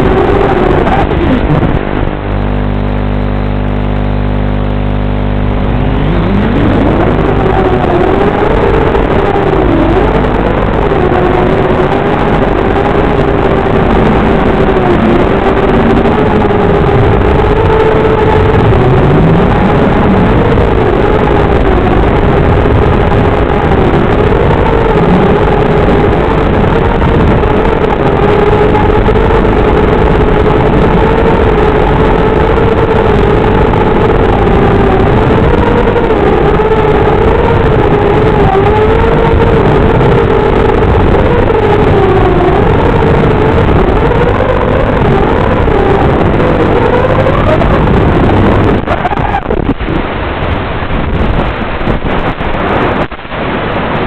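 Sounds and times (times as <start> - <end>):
rushing noise: 0.0 - 54.0
quadcopter motors whining: 5.4 - 26.0.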